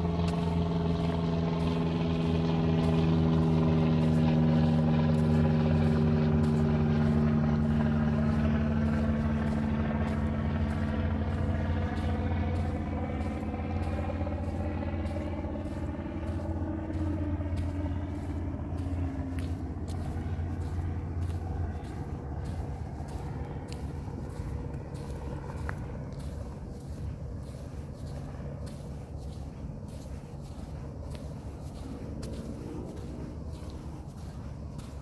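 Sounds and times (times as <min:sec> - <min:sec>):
engine humming: 0:00.0 - 0:35.0.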